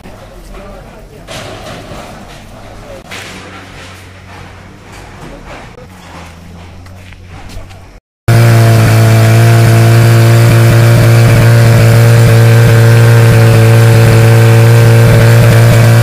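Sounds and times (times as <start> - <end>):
fire pump engine running: 5.8 - 16.0.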